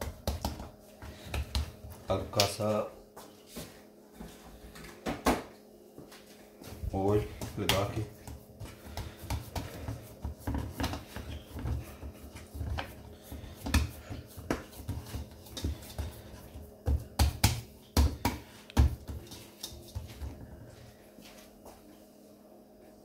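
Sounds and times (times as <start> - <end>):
sharp slaps on dough: 0.0 - 2.6, 7.4 - 9.8, 13.6 - 15.7, 16.8 - 19.2
hand patting dough: 0.0 - 4.4, 6.0 - 21.8.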